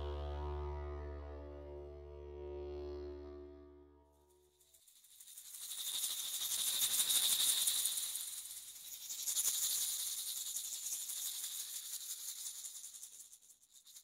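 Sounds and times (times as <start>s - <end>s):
hand rattle shaken: 4.6s - 14.0s.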